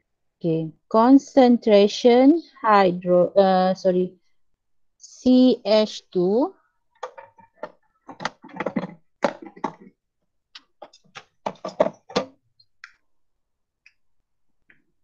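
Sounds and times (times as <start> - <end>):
ruler and pen knocking on desk: 11.4 - 12.3.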